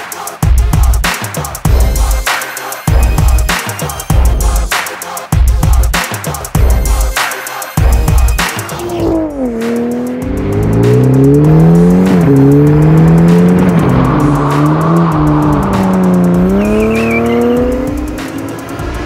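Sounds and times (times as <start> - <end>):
background music: 0.0 - 19.0
sports car exhaust revving: 8.8 - 19.0.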